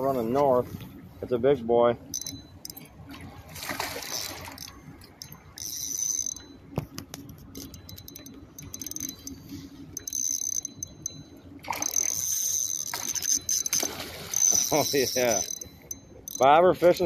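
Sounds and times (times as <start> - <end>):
low hum: 0.0 - 17.0
fishing reel buzzing: 2.1 - 2.9, 3.7 - 6.6, 7.5 - 16.7.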